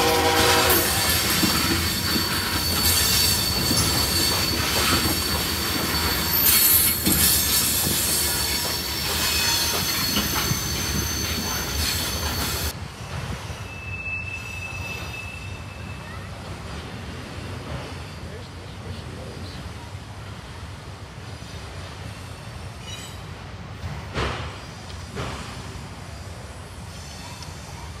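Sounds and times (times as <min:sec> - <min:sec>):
locomotive horn: 0:00.0 - 0:01.4
high-pitched wheel squeal: 0:00.0 - 0:12.7, 0:13.6 - 0:16.3
freight train rumbling past: 0:00.0 - 0:28.0.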